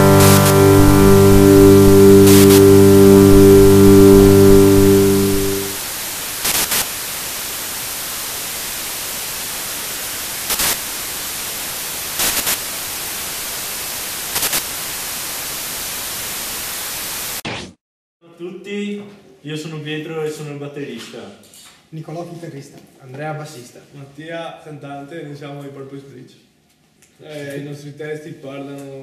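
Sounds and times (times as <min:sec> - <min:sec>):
held electronic chord: 0:00.0 - 0:05.9
static crackles: 0:00.0 - 0:17.7
tv static hiss: 0:00.0 - 0:17.7.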